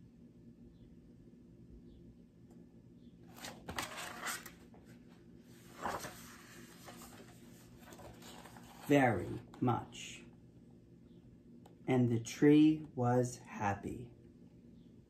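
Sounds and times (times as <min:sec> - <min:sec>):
book pages rustling: 0:03.3 - 0:09.6.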